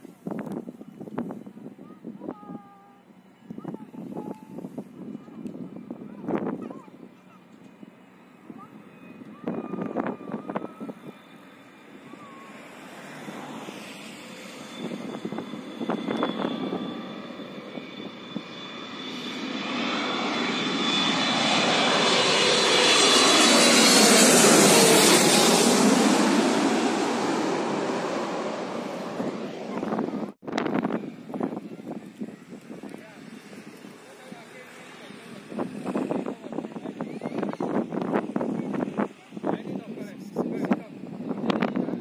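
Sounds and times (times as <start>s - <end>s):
jet airliner passing overhead: 0.0s - 42.0s
high engine whine: 7.5s - 38.8s.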